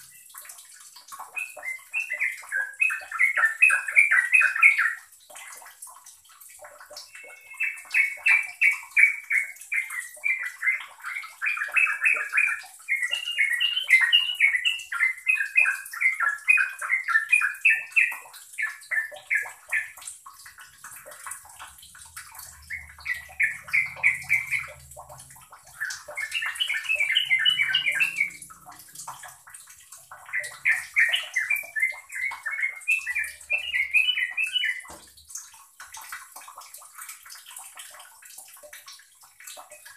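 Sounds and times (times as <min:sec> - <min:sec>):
bulbul singing chattering notes: 0:06.9 - 0:20.0, 0:22.5 - 0:24.8, 0:25.7 - 0:28.8.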